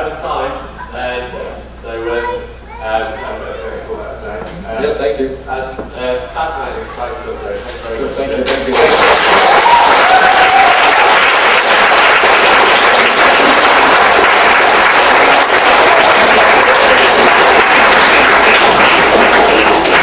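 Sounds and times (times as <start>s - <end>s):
audience applauding: 8.4s - 20.0s.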